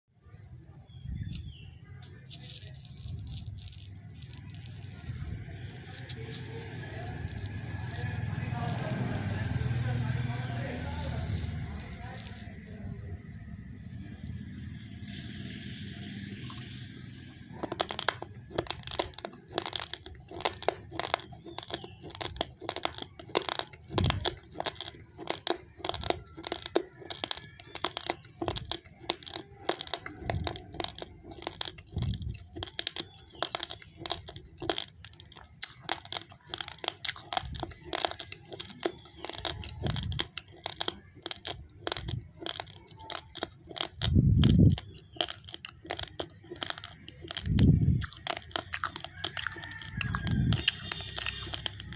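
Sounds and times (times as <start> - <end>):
raw rice crunching: 0.9 - 51.9.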